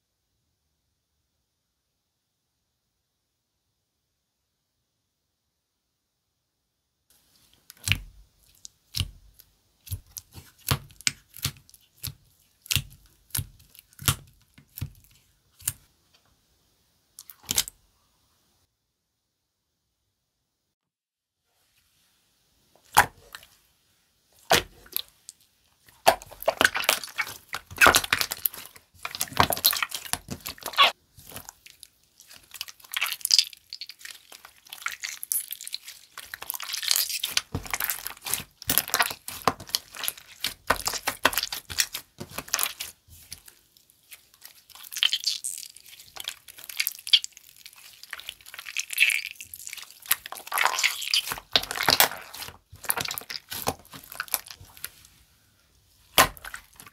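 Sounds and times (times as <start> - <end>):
slime squished crackling and popping: 7.7 - 15.9, 24.4 - 25.2, 25.8 - 55.0, 56.1 - 56.9.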